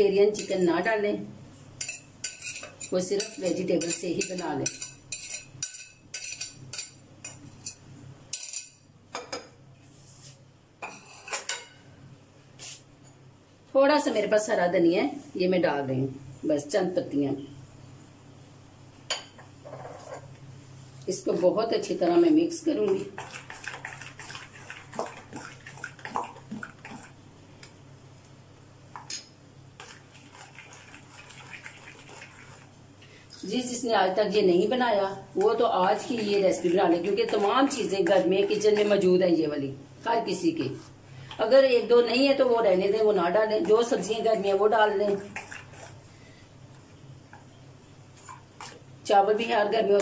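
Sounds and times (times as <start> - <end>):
wet batter squishing: 23.0 - 27.2, 35.9 - 39.0, 43.7 - 46.0.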